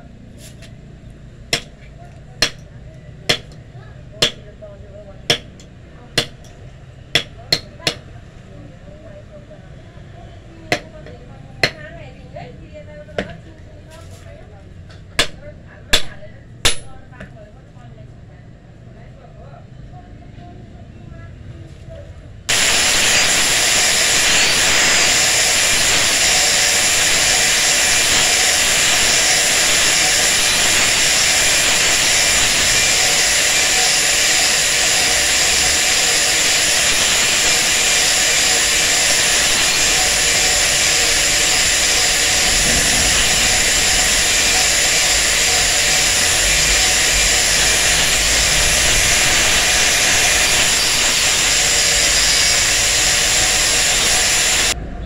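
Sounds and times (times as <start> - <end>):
angle grinder whine: 22.5 - 54.8
hiss of metal being ground: 22.5 - 54.8.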